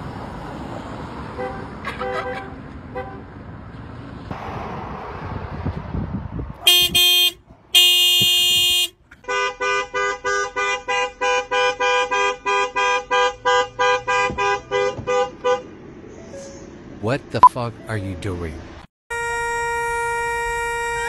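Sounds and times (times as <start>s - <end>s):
lower-pitched car horn toots: 6.6s - 9.0s, 19.1s - 21.0s
car horn blasts: 6.6s - 15.7s, 19.1s - 21.0s.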